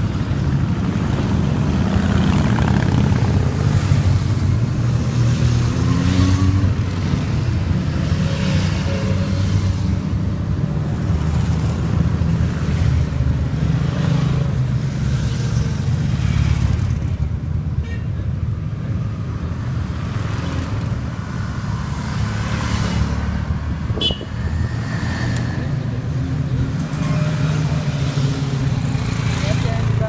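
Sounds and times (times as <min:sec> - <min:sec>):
motorcycles riding past: 0:00.0 - 0:17.4.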